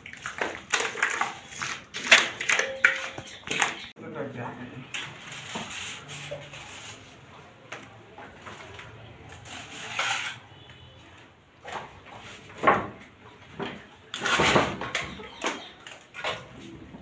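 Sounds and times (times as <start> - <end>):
wet plaster slapping: 0.0 - 3.9
plaster scraping: 5.0 - 7.3, 9.4 - 10.5.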